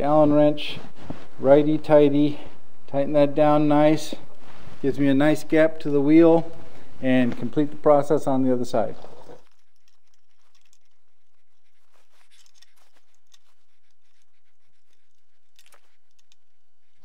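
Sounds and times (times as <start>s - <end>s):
faint steady hum: 0.0s - 17.0s
small metal clicks and scrapes: 9.0s - 17.0s.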